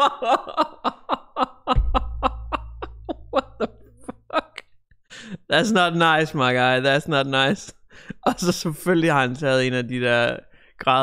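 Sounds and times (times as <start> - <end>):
deep low rumble: 1.8 - 4.4.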